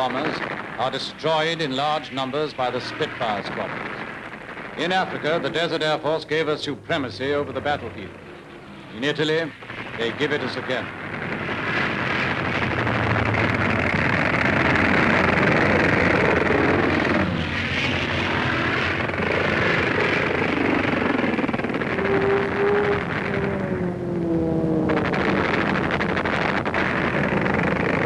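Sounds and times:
falling whine: 0.0s - 28.0s
piston aircraft engine roaring: 0.0s - 28.0s.

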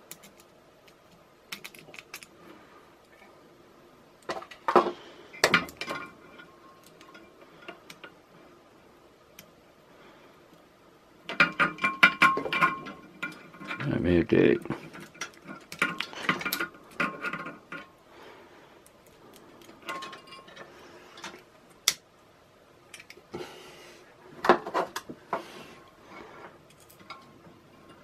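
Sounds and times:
small metal parts clicking: 0.0s - 2.4s, 11.3s - 18.0s, 26.6s - 27.3s.

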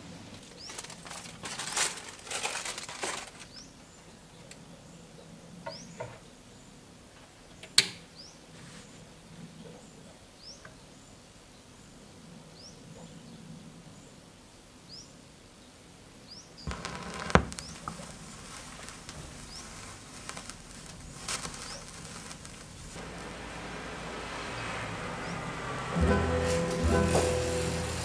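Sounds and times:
vinyl surface hiss and crackles: 8.5s - 9.4s, 16.7s - 28.0s
stylus click on record: 16.7s - 23.0s.

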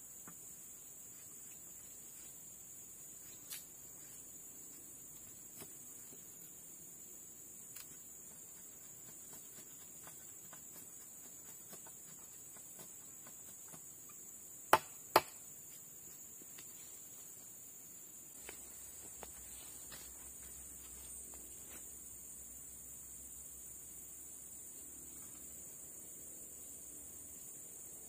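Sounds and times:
forest insects droning: 0.0s - 28.0s
machete chopping into wood: 14.7s - 15.4s.

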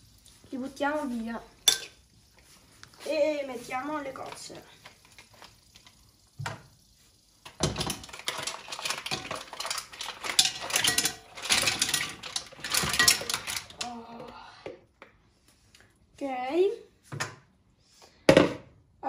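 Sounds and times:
mussel shells clattering in metal pan: 7.5s - 14.0s.

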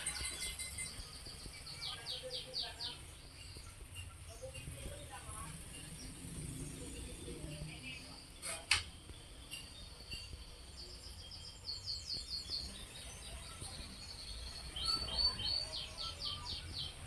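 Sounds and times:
small bird chirping: 0.0s - 17.0s.

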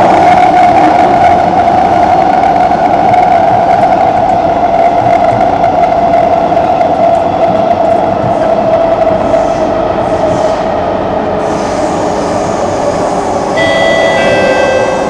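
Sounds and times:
train wheels rumbling on rail: 0.0s - 15.0s.

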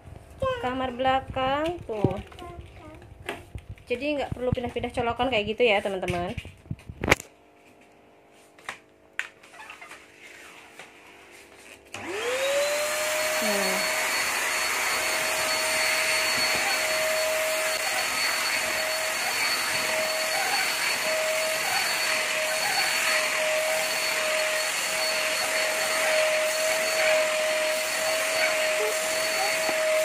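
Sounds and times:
vacuum cleaner running: 10.2s - 30.0s.

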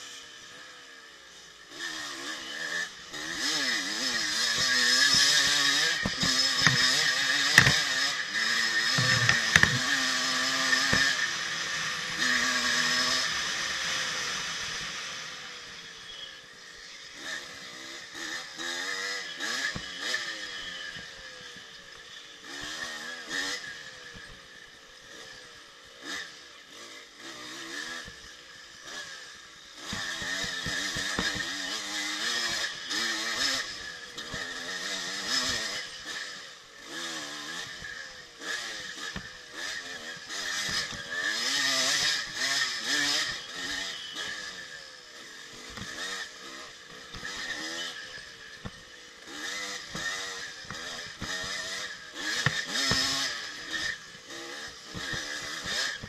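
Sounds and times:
dirt bike engine revving: 0.0s - 56.0s
knocks and clatter from rough ground: 4.4s - 11.2s, 29.8s - 31.6s, 49.6s - 56.0s.

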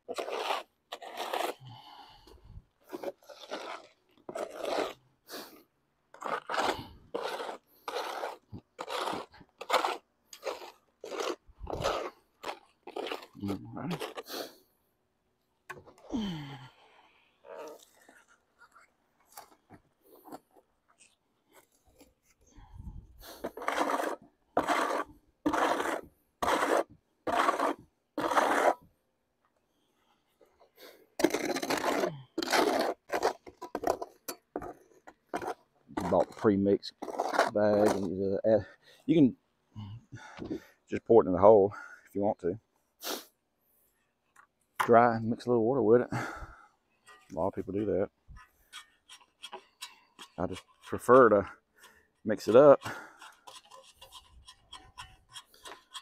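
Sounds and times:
hoe scraping concrete mix: 0.0s - 14.6s, 22.8s - 28.9s, 30.8s - 39.3s, 44.8s - 56.0s.

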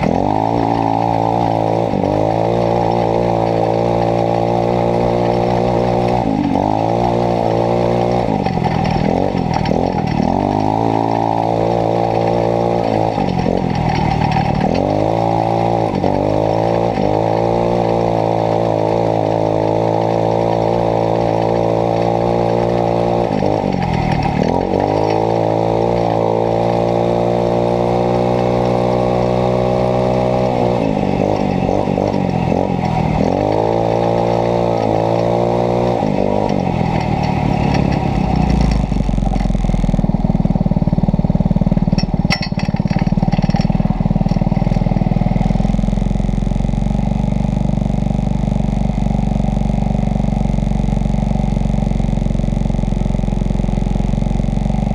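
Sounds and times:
small buggy engine revving: 0.0s - 54.9s
clicks: 30.5s - 39.7s, 41.9s - 46.4s.

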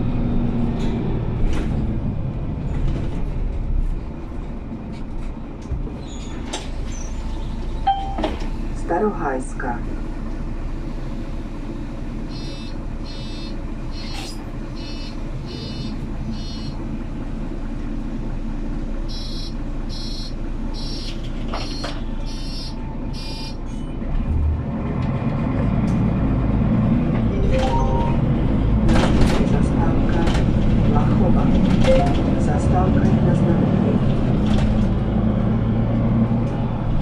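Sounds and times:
bus engine running: 0.0s - 37.0s
door warning beeps: 7.9s - 8.4s, 12.3s - 16.8s, 19.1s - 23.6s, 27.4s - 28.2s, 31.9s - 32.3s.

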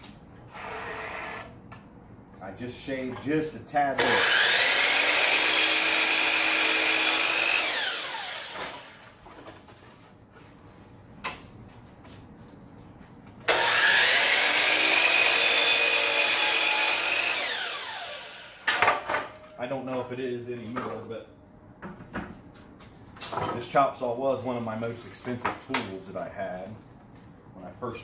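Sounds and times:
miter saw whining and cutting: 4.0s - 9.1s, 13.5s - 18.8s.

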